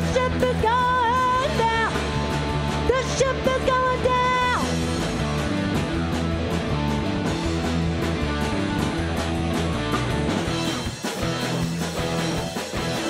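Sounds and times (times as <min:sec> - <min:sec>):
drums keeping a beat: 0:00.0 - 0:13.0
electric bass: 0:00.0 - 0:13.0
electric guitars: 0:00.0 - 0:13.0.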